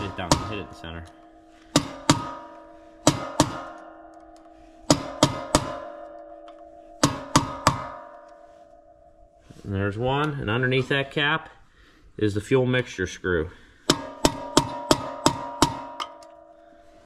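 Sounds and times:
hammer striking metal: 0:00.0 - 0:09.6, 0:13.8 - 0:16.8.

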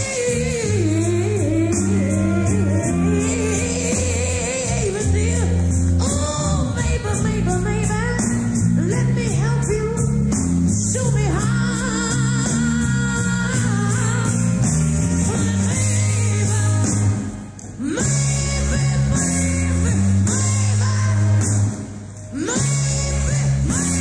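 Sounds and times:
woman singing rock song: 0:00.0 - 0:10.2
live rock band: 0:00.0 - 0:24.0.

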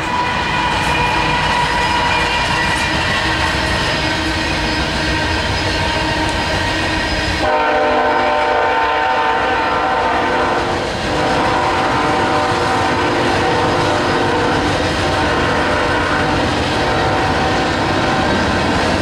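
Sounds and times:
train wheels clattering on rail: 0:00.0 - 0:19.0
locomotive horn: 0:07.4 - 0:18.3.

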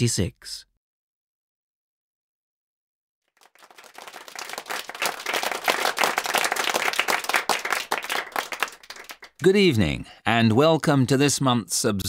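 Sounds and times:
audience applause: 0:03.3 - 0:09.4.

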